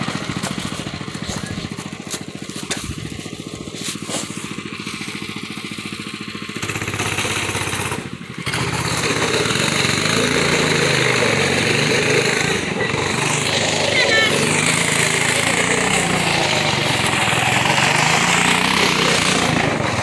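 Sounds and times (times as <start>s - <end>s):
go-kart engine putter: 0.0s - 20.0s.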